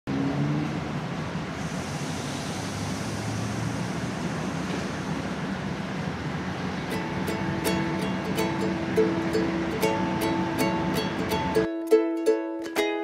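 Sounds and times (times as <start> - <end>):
low engine hum: 0.1 - 12.4
steady hiss: 1.4 - 11.6.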